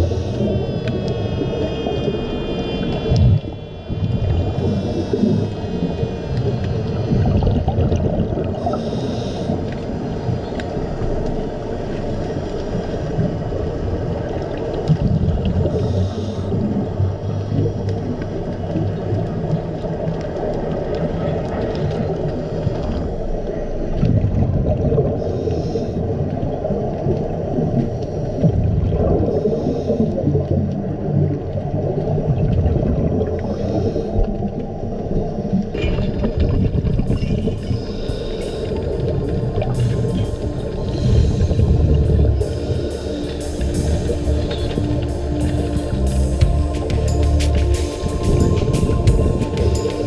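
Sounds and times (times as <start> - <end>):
low underwater rumble: 0.0 - 50.0
exhalation bubbling: 7.1 - 8.8
scuba regulator inhalation hiss: 8.6 - 10.2, 15.7 - 16.8, 33.5 - 34.2, 37.5 - 50.0.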